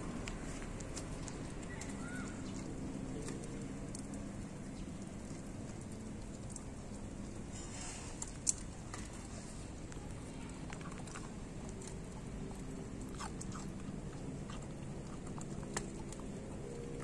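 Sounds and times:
dog chewing and gulping: 0:08.1 - 0:17.0.

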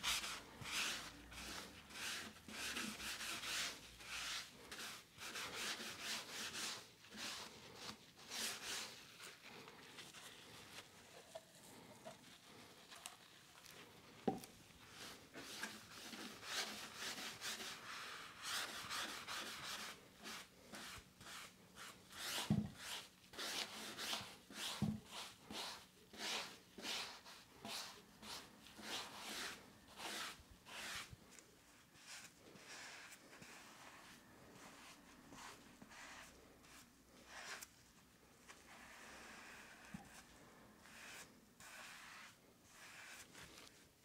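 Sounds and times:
sponge rubbing on wood: 0:40.8 - 0:43.4.

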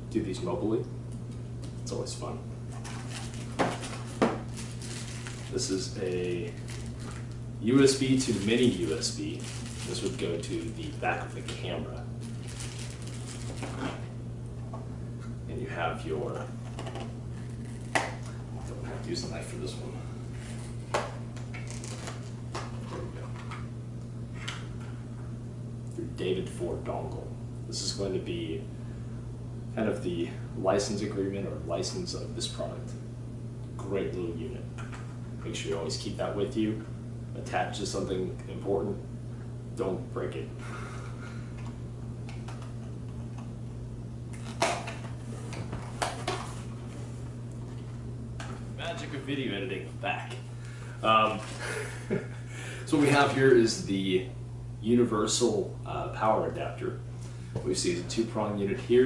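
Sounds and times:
steady low hum: 0:00.0 - 0:59.0
packaging crinkling and clicking: 0:02.8 - 0:07.4, 0:08.1 - 0:11.6, 0:12.2 - 0:14.0, 0:21.4 - 0:22.7.

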